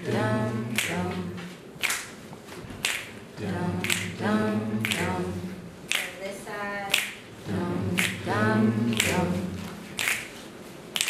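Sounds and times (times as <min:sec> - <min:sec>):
voices singing a cappella: 0:00.0 - 0:01.7, 0:03.3 - 0:10.2
finger snaps keeping beat: 0:00.7 - 0:01.2, 0:01.8 - 0:02.2, 0:02.8 - 0:03.2, 0:03.8 - 0:05.2, 0:05.9 - 0:06.2, 0:06.9 - 0:07.2, 0:07.9 - 0:08.3, 0:08.9 - 0:09.3, 0:10.0 - 0:10.4.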